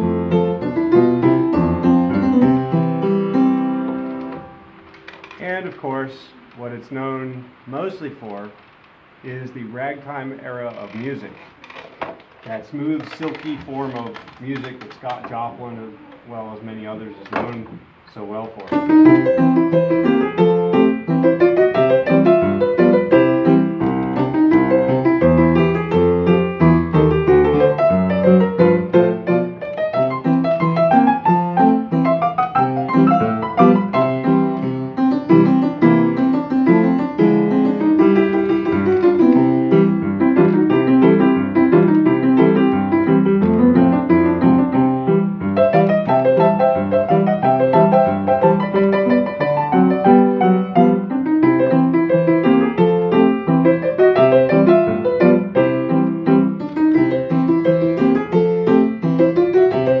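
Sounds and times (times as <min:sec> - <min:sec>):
player piano playing ragtime: 0:00.0 - 0:05.8, 0:18.6 - 1:00.0.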